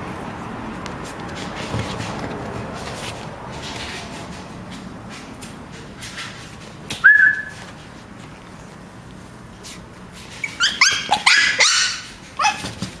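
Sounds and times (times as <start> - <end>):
puppy yipping: 7.0 - 7.6, 10.4 - 13.0
puppy whining: 10.4 - 13.0.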